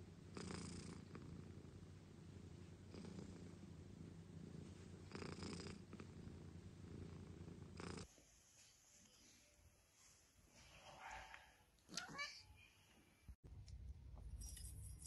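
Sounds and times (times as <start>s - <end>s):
cat purring: 0.0s - 8.1s.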